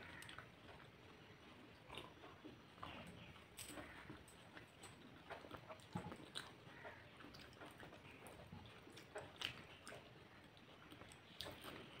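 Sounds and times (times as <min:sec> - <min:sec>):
person chewing with wet mouth sounds: 0:00.0 - 0:12.0.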